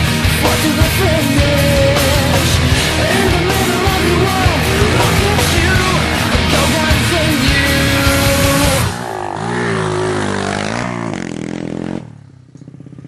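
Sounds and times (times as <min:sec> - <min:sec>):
rock music: 0:00.0 - 0:09.3
motorbike engine revving: 0:00.1 - 0:13.0.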